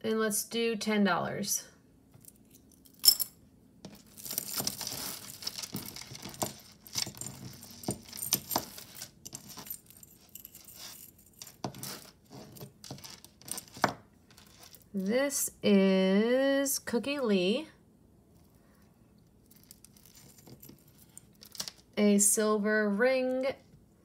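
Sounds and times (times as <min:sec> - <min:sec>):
jewelry clinking: 0:02.1 - 0:15.2, 0:19.4 - 0:22.0
bag rustling: 0:03.9 - 0:14.9
beads and metal clicking: 0:03.9 - 0:15.1, 0:19.4 - 0:21.8.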